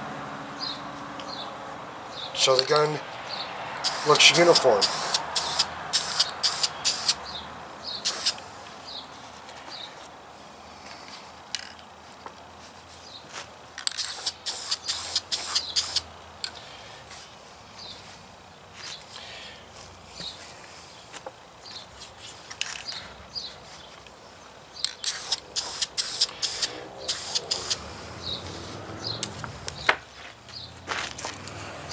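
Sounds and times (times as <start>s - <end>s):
spray can hissing: 3.8s - 7.2s, 8.0s - 8.4s, 14.0s - 16.0s, 25.0s - 27.9s.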